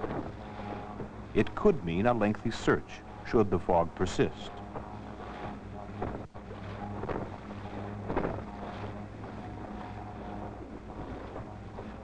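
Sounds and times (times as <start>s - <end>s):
wind on microphone: 0.0s - 2.4s, 4.6s - 12.0s
outboard motor droning: 0.0s - 12.0s
water splashing: 5.1s - 12.0s.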